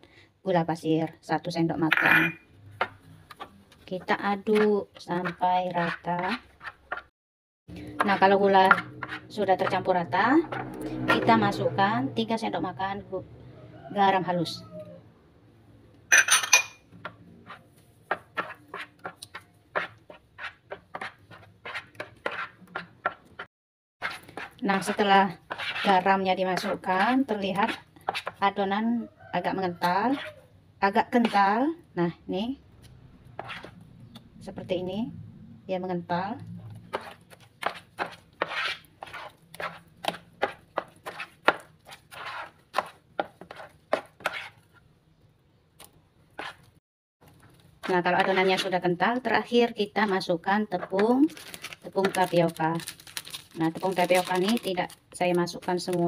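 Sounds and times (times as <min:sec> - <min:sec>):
spoon stirring thick dough: 0:02.6 - 0:07.1, 0:07.7 - 0:11.3, 0:16.9 - 0:28.6, 0:29.8 - 0:31.6, 0:36.6 - 0:44.9, 0:45.8 - 0:52.9
spatula slapping wet fish paste: 0:02.8 - 0:07.0, 0:18.1 - 0:28.4, 0:36.7 - 0:44.9, 0:45.8 - 0:46.8, 0:47.4 - 0:49.0.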